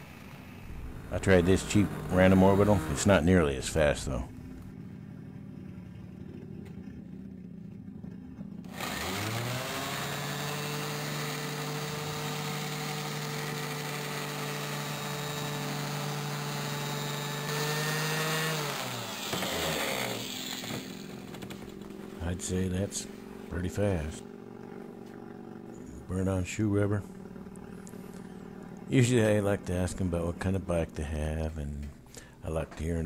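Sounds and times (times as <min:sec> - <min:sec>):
electric orbital sander whining: 0:00.0 - 0:04.7, 0:08.6 - 0:26.3.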